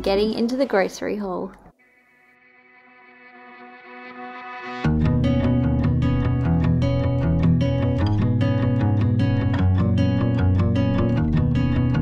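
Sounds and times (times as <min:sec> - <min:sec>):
strummed guitar: 0:02.4 - 0:12.0
bass line: 0:04.9 - 0:12.0.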